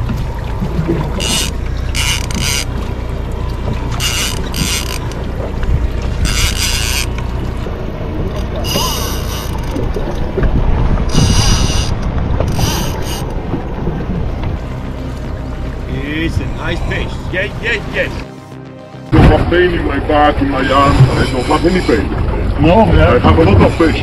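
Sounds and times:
fishing reel buzzing: 1.2s - 2.7s, 3.9s - 5.2s, 6.1s - 7.2s, 8.4s - 9.8s, 11.1s - 13.3s
wind rumble on microphone: 2.6s - 15.0s.

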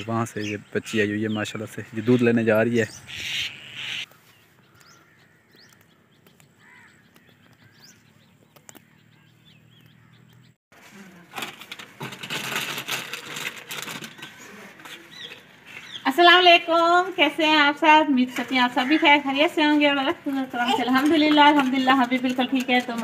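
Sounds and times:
bird chirps: 0.3s - 10.6s
plastic wrapper crinkling: 11.3s - 14.4s.

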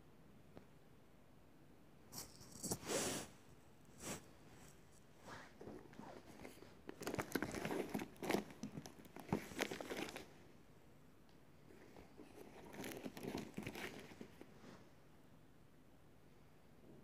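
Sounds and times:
packaging crinkling: 6.1s - 10.4s, 12.2s - 14.4s.

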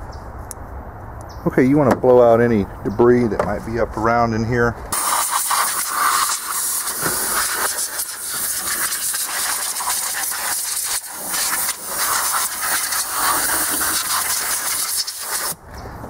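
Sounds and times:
blown air hissing: 4.9s - 15.6s.

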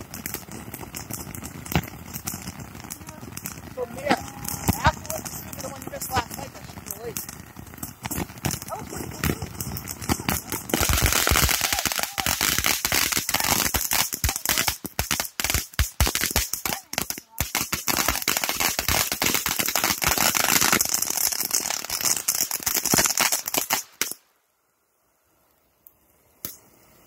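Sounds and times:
firework cake crackling and banging: 0.0s - 24.2s.

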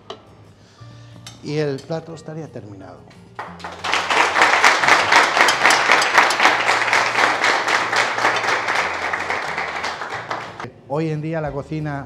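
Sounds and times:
audience applauding: 3.4s - 10.7s.

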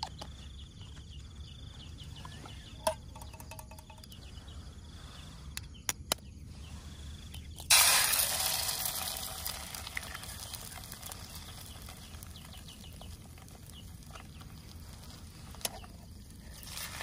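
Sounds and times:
insects trilling: 0.0s - 17.0s
egg sizzling in hot oil: 7.6s - 15.6s, 16.4s - 17.0s.

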